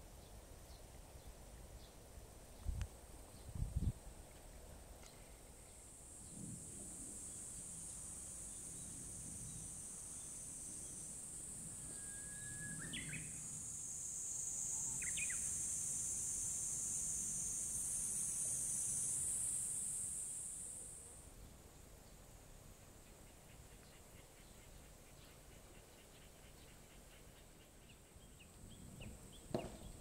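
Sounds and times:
high-pitched insect drone: 5.7 - 21.2.

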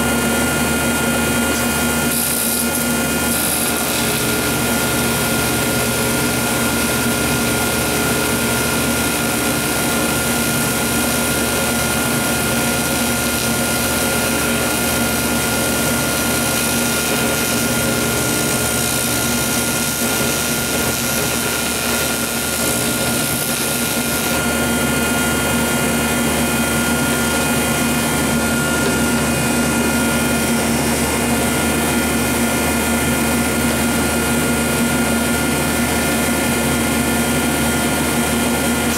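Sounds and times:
welder humming: 0.0 - 38.9
welding arc hissing: 0.4 - 38.9.

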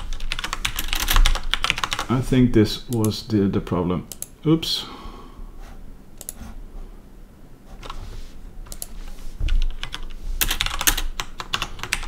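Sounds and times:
typing on computer keyboard: 0.0 - 2.1, 9.6 - 12.0.

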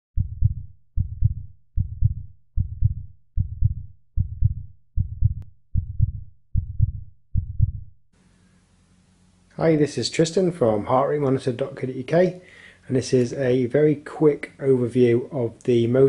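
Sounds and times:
heartbeat thumps: 0.2 - 8.0.

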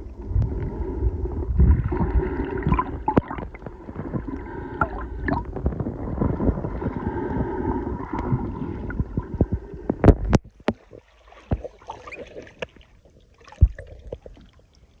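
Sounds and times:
underwater churning and gurgling: 0.0 - 15.0
underwater clicks: 1.6 - 7.2, 8.0 - 11.7.

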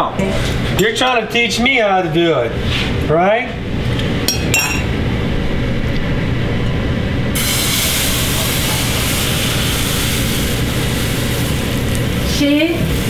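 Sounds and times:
steady low hum: 0.0 - 13.0
batter sizzling in frying pan: 7.4 - 13.0.

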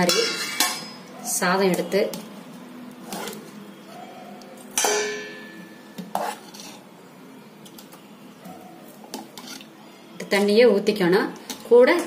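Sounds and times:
ladle clanking against pots: 0.0 - 1.1, 4.7 - 6.7.

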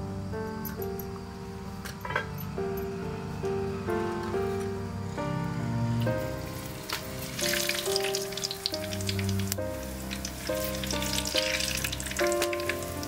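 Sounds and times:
background music: 0.0 - 13.0
seeds sizzling in hot oil: 6.0 - 13.0.

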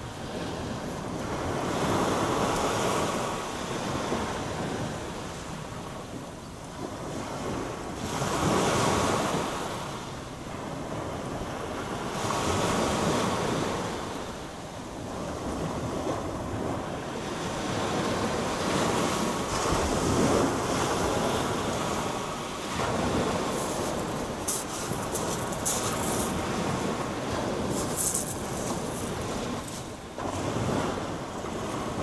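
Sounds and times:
wind buffeting microphone: 15.0 - 32.0
waves breaking on shingle beach: 15.1 - 32.0.

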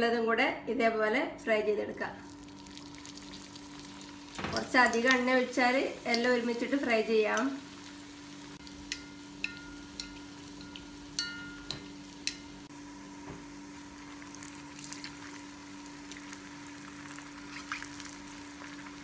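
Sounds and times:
deep-frying sizzle in oil: 2.2 - 19.0
steel spoon clinking against pan: 8.8 - 12.5.

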